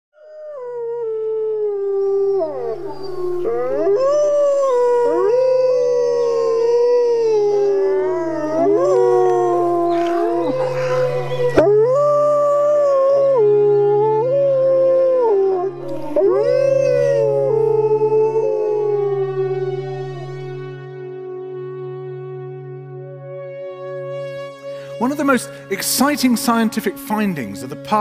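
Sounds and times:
wolves howling in chorus: 0:00.3 - 0:20.6.

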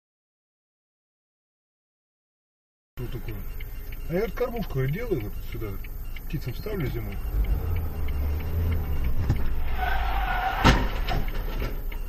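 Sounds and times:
car engine and road noise: 0:03.0 - 0:12.0
tyres squealing: 0:03.1 - 0:12.0.

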